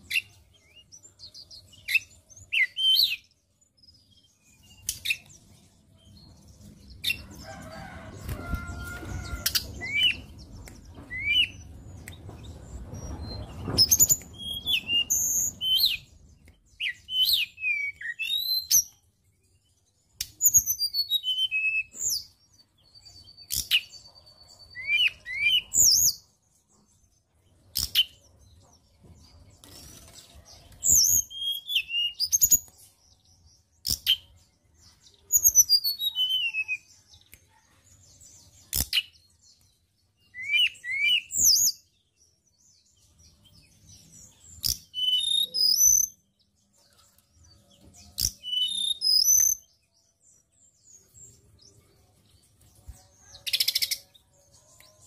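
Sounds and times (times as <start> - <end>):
bird singing whistled notes: 0.0 - 3.4, 9.8 - 10.3, 11.0 - 12.2, 12.8 - 19.0, 20.2 - 26.2, 30.8 - 32.7, 35.1 - 36.9, 40.2 - 42.1, 42.7 - 46.4, 48.0 - 50.2.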